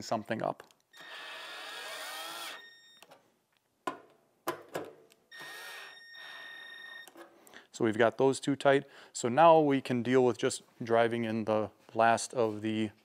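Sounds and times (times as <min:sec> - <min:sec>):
cordless drill driving screws: 0:00.9 - 0:02.8, 0:05.3 - 0:06.4.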